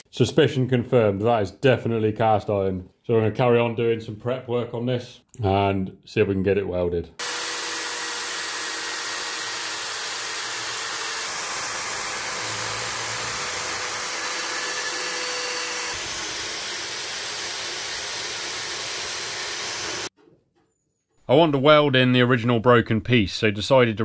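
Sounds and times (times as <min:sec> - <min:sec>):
die grinder grinding metal: 0:07.2 - 0:20.1.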